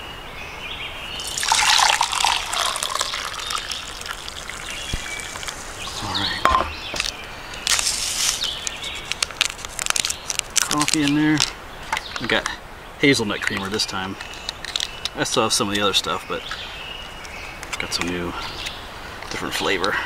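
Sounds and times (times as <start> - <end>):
water pouring into a cup: 1.2 - 5.8.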